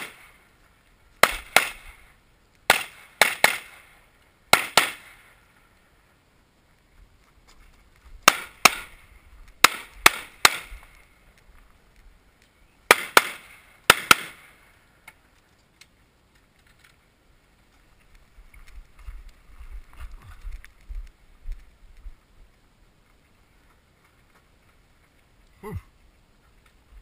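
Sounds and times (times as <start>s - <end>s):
pistol gunshots: 0.0s - 0.3s, 1.2s - 1.9s, 2.7s - 3.9s, 4.5s - 5.3s, 8.2s - 9.0s, 9.6s - 10.8s, 12.9s - 14.6s.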